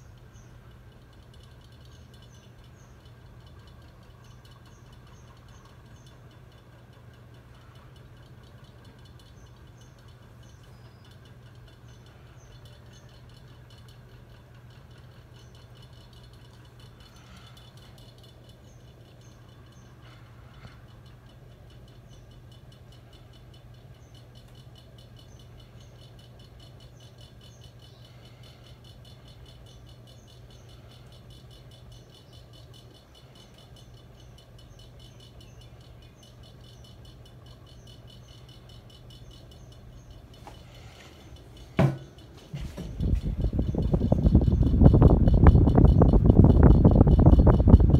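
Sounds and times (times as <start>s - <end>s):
ceiling fan humming and ticking: 0.0s - 47.9s
sharp knock: 41.8s - 42.0s.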